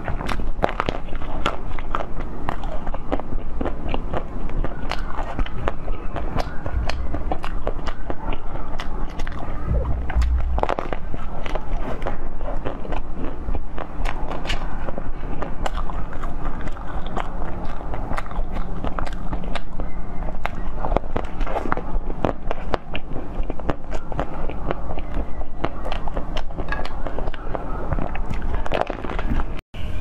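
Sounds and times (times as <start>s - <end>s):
biting and chewing jelly: 0.0s - 29.6s
low thud: 9.7s - 11.6s.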